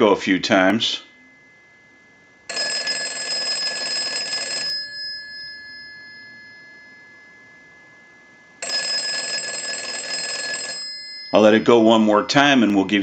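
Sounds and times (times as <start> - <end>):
telephone bell ringing: 2.5 - 12.5.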